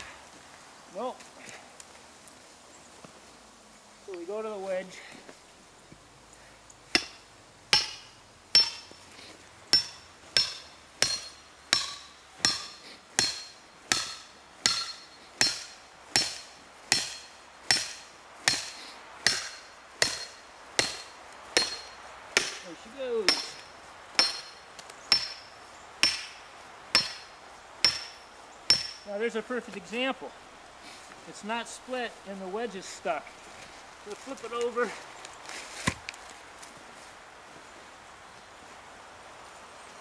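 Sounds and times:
hammer striking steel wedge: 6.9 - 9.0, 9.7 - 22.6, 23.3 - 26.4, 27.0 - 29.1.

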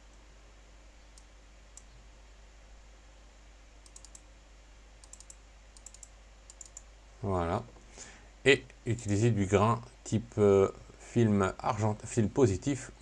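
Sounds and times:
low steady hum: 0.0 - 13.0
computer mouse clicks: 1.1 - 2.0, 3.8 - 4.3, 5.0 - 6.9.

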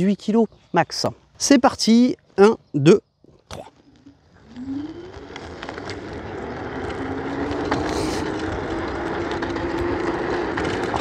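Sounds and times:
electric motor whining: 4.2 - 11.0.

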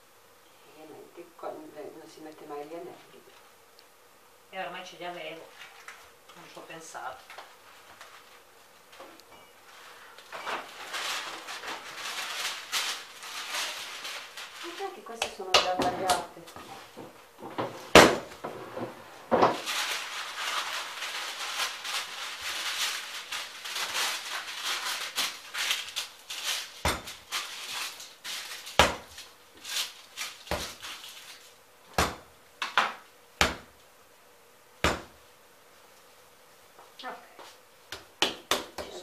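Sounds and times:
dough rubbing and kneading: 9.6 - 33.8
dough slapped on stone thumps: 26.8 - 27.2, 28.8 - 29.1, 30.5 - 30.8, 31.9 - 33.8, 34.8 - 35.2, 37.9 - 39.0.

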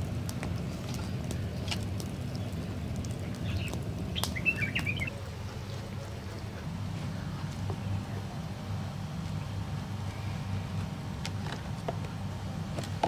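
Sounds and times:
steady low rumble: 0.0 - 13.0
small bird chirping: 3.2 - 5.9.

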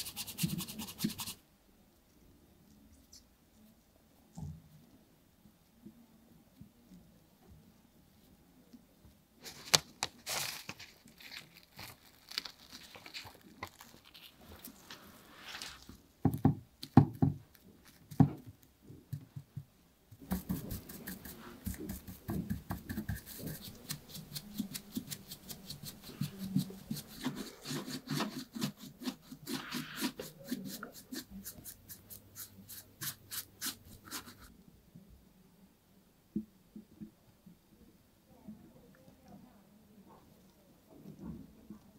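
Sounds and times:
brush scratching over foil: 0.0 - 1.4, 9.4 - 16.0, 20.2 - 34.5
foil crinkling: 9.4 - 16.0.

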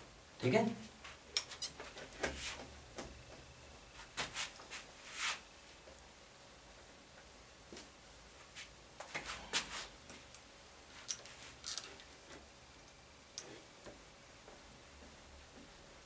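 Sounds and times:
cloth rubbing whiteboard: 2.3 - 2.7, 4.2 - 5.4.

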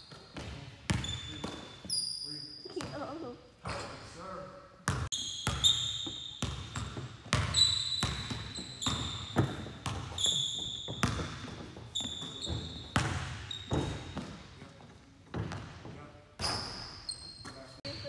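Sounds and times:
sneaker squeaks on floor: 0.0 - 4.0, 4.9 - 14.5, 16.4 - 18.0
basketball bouncing on hardwood: 6.4 - 14.3.

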